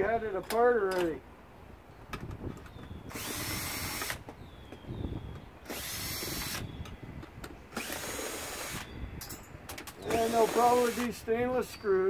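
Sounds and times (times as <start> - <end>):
power drill backing out screws: 2.7 - 4.8, 5.6 - 6.8, 7.7 - 9.0, 9.7 - 11.2
screws clicking and rattling: 9.8 - 11.2.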